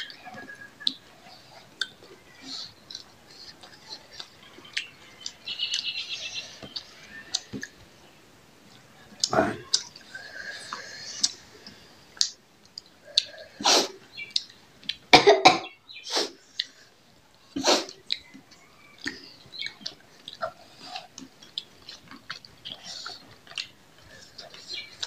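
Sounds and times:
wet eating clicks and chewing: 1.6s - 6.0s, 10.7s - 13.4s, 14.1s - 15.1s, 16.5s - 16.8s, 17.9s - 25.0s
throat clearing: 15.1s - 15.7s
person coughing: 15.2s - 15.7s.

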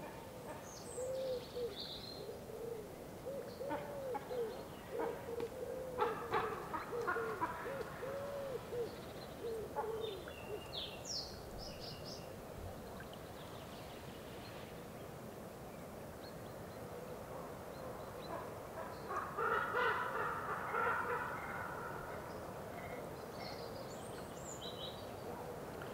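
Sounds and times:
ravens calling: 18.8s - 22.3s.

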